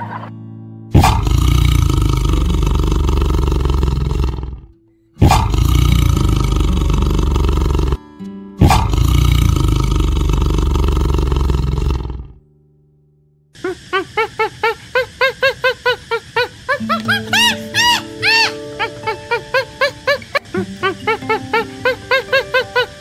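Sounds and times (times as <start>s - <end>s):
tiger roaring: 1.0s - 8.0s, 8.6s - 12.4s.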